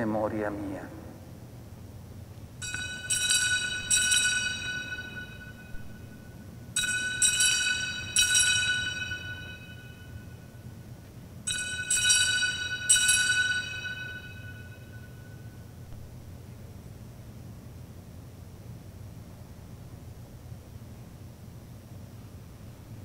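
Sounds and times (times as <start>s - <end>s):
bells ringing: 2.6s - 10.5s, 11.5s - 15.6s.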